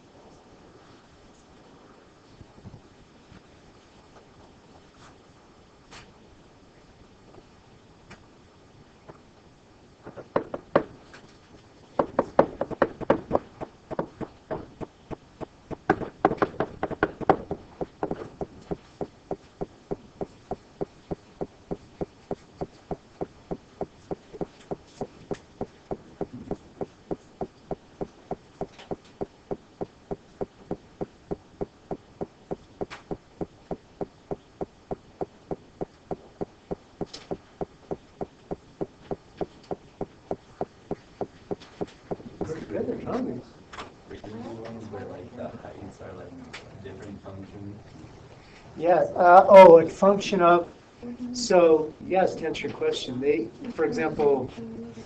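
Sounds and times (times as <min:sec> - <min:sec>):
rapid steady ticking: 0:10.0 - 0:11.0, 0:12.0 - 0:42.5
irregular knocks and clatter: 0:10.0 - 0:42.6.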